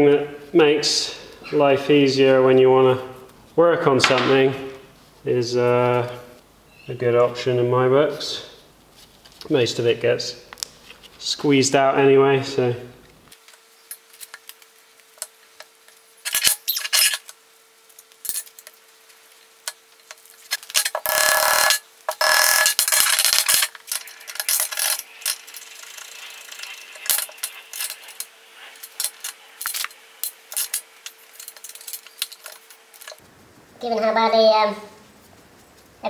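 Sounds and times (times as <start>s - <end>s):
faint steady hum: 0.0s - 36.0s.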